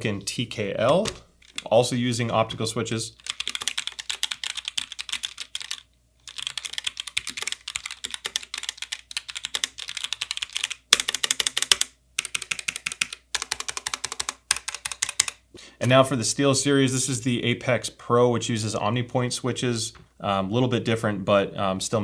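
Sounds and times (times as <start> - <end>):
fast keyboard typing: 1.0 - 1.8, 3.2 - 15.4.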